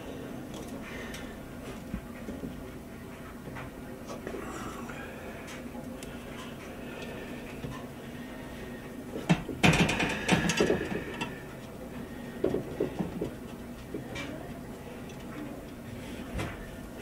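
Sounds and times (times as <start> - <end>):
metal parts clanking and rattling: 9.6 - 11.0.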